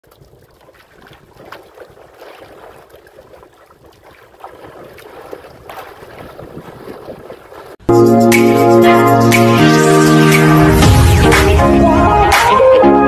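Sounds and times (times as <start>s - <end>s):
short splashes: 0.0s - 7.8s
water lapping against boat hull: 0.0s - 7.8s
wind on microphone: 0.1s - 7.8s.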